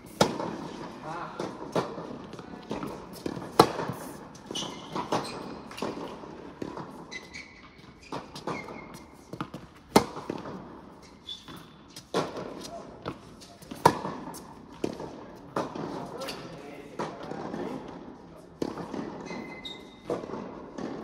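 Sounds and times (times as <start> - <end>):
tennis balls bouncing on court: 0.0 - 21.0
tennis balls hit by rackets: 0.0 - 21.0
shoes squeaking: 1.8 - 14.6, 15.8 - 16.8, 19.1 - 20.3.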